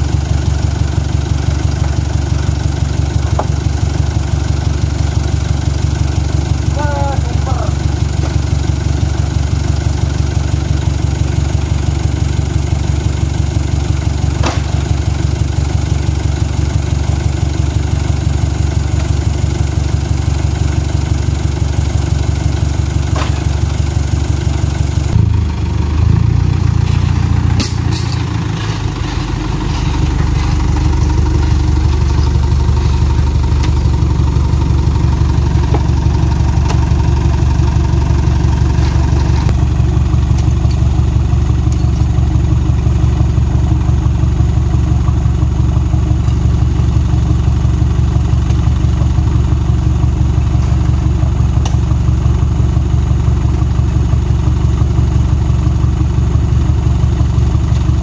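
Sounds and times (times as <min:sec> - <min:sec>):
truck engine idling: 0:00.0 - 0:58.0
fruit bunches knocking on truck bed: 0:03.2 - 0:03.7, 0:14.3 - 0:15.0, 0:23.0 - 0:23.7.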